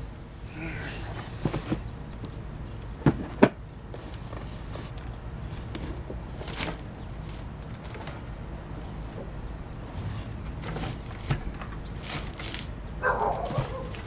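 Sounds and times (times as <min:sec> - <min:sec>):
cardboard rustling: 0:09.9 - 0:14.0.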